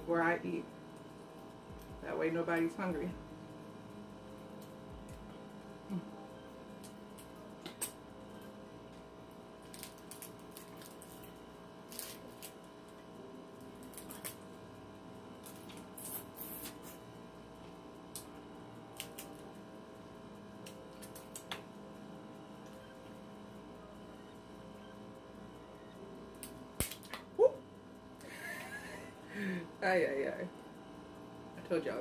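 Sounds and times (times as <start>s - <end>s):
electrical hum: 0.0s - 32.0s
crab shells cracking: 9.6s - 11.3s, 13.8s - 14.4s, 19.0s - 19.4s, 20.6s - 21.6s, 26.4s - 27.2s.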